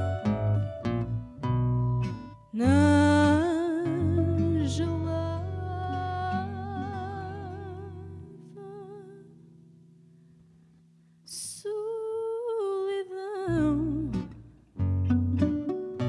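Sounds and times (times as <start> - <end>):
plucked guitar and bass: 0.0 - 8.5, 13.5 - 16.0
person singing with vibrato: 2.6 - 9.3.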